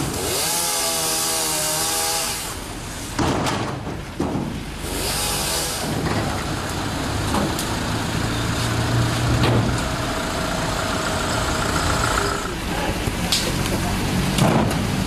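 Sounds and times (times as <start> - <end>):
truck engine running: 3.9 - 15.0.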